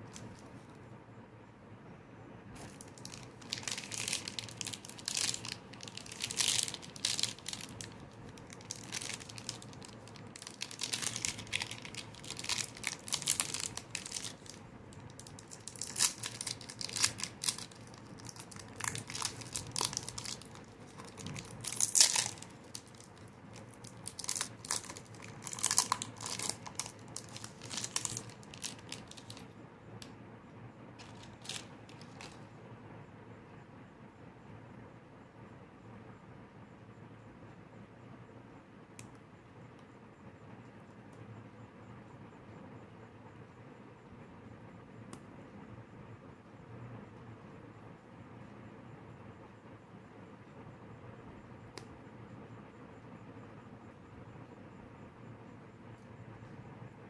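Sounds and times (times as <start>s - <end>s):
foil wrapper crinkling and tearing: 2.6s - 29.5s, 31.0s - 32.4s.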